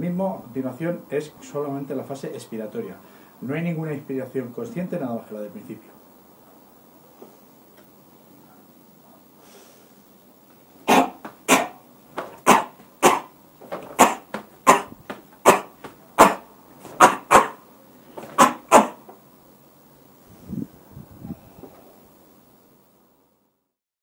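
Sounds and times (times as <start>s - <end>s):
man's forceful breath exhalations: 9.4s - 10.1s.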